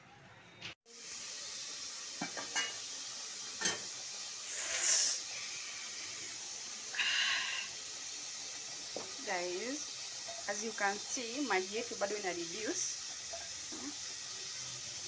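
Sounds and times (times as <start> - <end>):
water boiling in a pot: 0.9 - 15.0.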